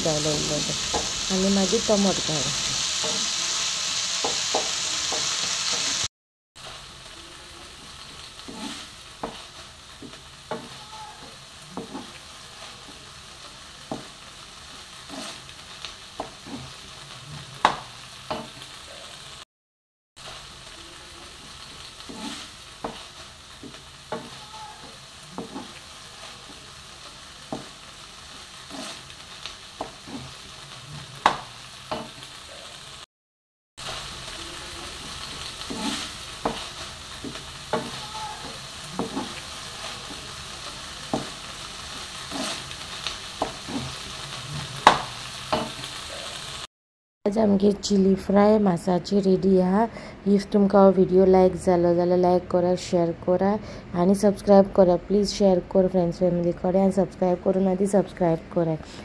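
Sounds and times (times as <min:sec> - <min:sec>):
meat and vegetables sizzling: 0:00.0 - 0:19.5, 0:20.2 - 0:33.1, 0:33.8 - 0:46.7
wooden spatula scraping pan: 0:08.5 - 0:09.5, 0:15.1 - 0:15.4, 0:22.0 - 0:26.6, 0:28.7 - 0:29.0, 0:34.9 - 0:40.2, 0:43.4 - 0:44.9.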